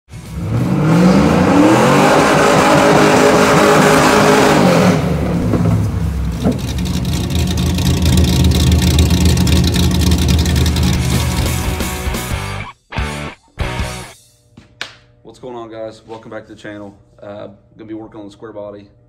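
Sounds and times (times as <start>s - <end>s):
car accelerating hard: 0.3s - 11.8s
car engine idling: 5.1s - 12.2s.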